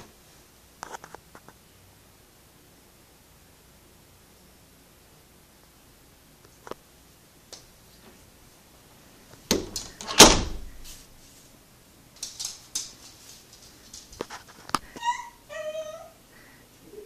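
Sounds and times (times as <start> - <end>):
door clicks: 9.5 - 10.7.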